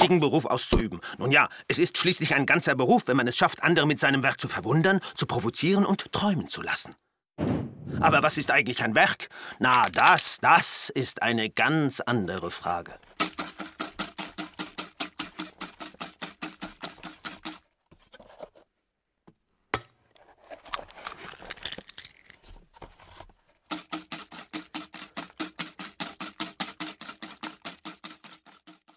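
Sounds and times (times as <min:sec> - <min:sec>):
rapid even clicking: 0:23.7 - 0:28.9.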